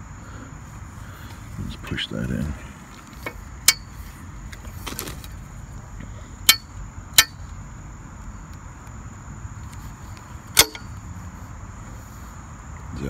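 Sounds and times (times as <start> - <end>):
metal tubes clinking: 10.5 - 11.0.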